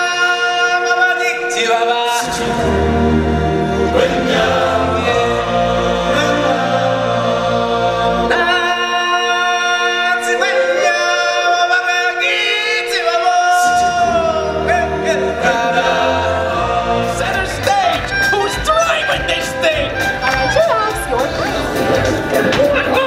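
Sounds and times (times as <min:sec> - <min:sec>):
low stage show accompaniment: 0:00.0 - 0:23.0
choir singing long notes: 0:01.6 - 0:18.5.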